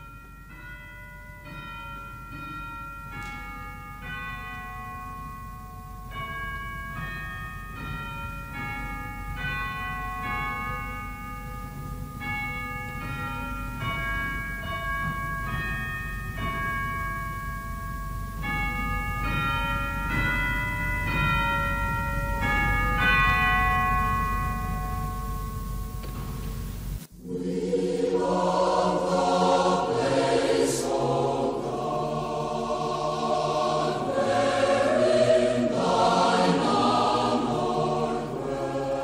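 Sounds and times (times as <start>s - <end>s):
bell-like instrumental melody: 0.0s - 27.0s.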